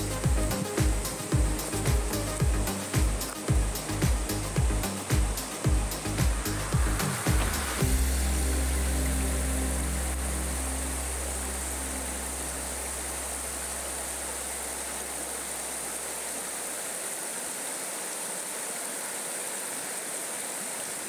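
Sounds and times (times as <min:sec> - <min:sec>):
background music: 0:00.0 - 0:14.6
river water rushing: 0:00.0 - 0:21.0.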